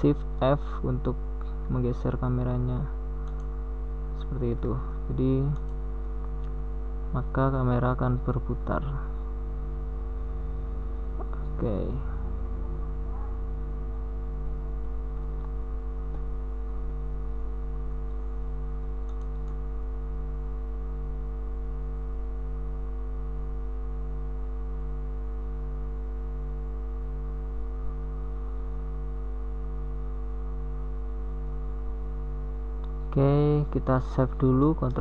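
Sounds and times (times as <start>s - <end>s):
electrical hum: 0.0s - 35.0s
faint clicks: 3.2s - 3.5s
low pulsing tone: 8.8s - 18.5s.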